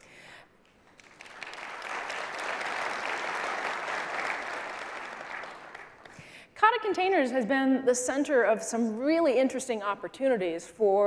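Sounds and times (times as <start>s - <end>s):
audience applauding: 0.8s - 6.2s.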